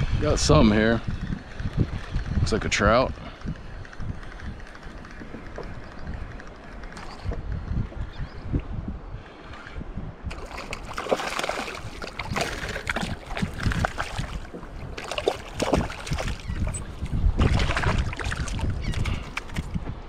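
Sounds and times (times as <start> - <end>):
wind rumbling on microphone: 0.0 - 20.0
water splashing and sloshing: 10.3 - 19.9.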